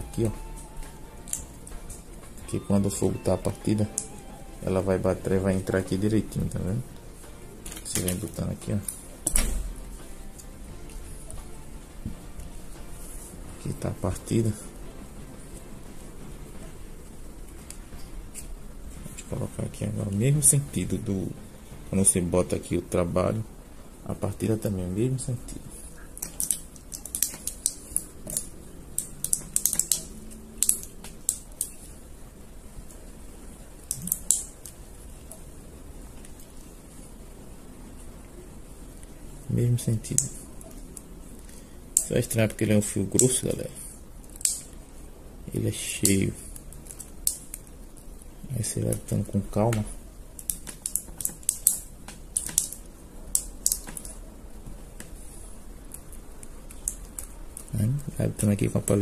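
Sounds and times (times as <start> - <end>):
wire clicking against metal core: 26.2 - 31.8, 33.9 - 34.8, 44.2 - 44.8, 50.4 - 54.2.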